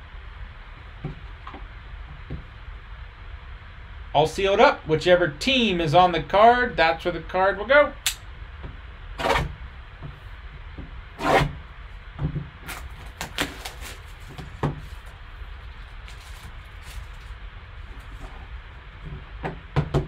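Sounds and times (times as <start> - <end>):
low steady hum: 0.0 - 20.0
plastic wrap crinkling and tearing: 12.7 - 18.1.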